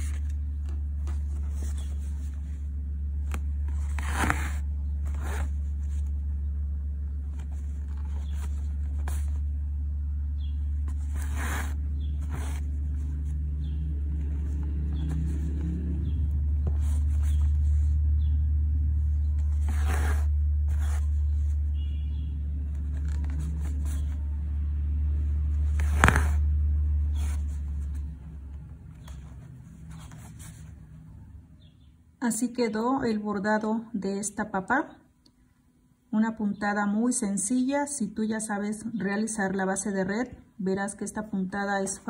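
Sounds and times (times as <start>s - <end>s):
steady low rumble: 0.0s - 31.6s.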